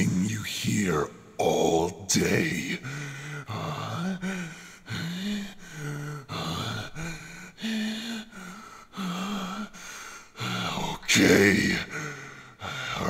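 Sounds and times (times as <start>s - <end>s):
man making wordless vocal sounds: 0.0s - 5.0s, 10.5s - 13.0s.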